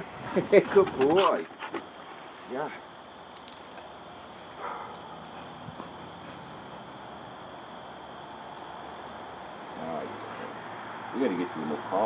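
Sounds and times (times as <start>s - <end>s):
dog collar tags jingling: 2.6s - 3.8s, 4.6s - 12.0s.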